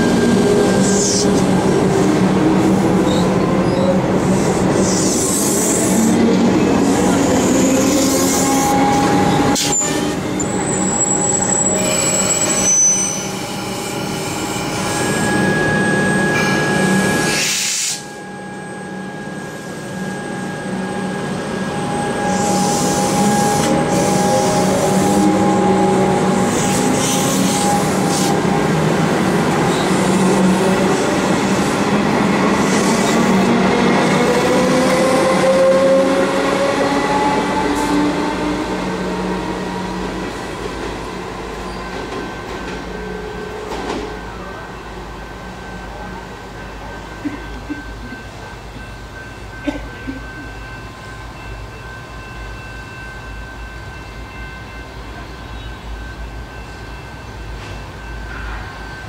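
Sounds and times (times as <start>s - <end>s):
train wheels on rails: 0.0s - 18.4s, 19.0s - 59.0s
train approaching: 0.0s - 59.0s.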